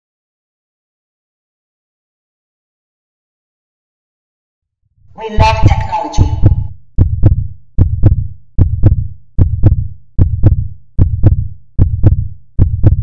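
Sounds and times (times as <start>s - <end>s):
electronic heartbeat-like thumps: 5.4s - 13.0s.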